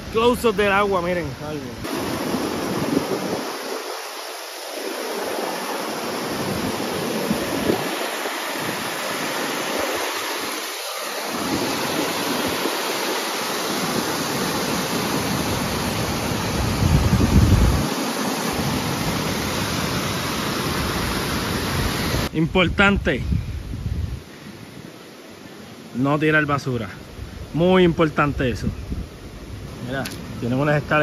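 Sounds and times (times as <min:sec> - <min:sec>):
river water rushing: 0:00.0 - 0:22.3.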